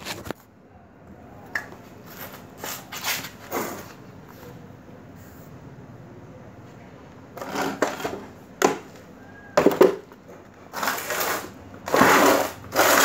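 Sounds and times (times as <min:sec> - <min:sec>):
knocks and scrapes on concrete: 0:07.3 - 0:08.9, 0:09.6 - 0:13.0
rough scraping: 0:10.7 - 0:13.0.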